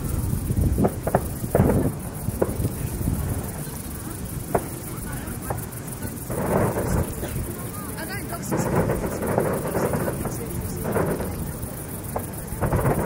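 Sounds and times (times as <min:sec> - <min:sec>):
fireworks booming and cracking: 0:00.0 - 0:13.0.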